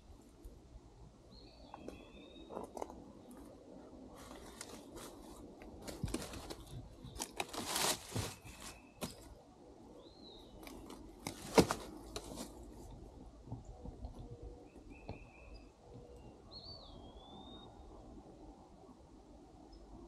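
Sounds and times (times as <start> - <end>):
bird chirps: 1.3 - 2.6, 10.0 - 10.9, 14.5 - 17.9
crunching and rustling: 4.1 - 9.4, 10.6 - 14.0.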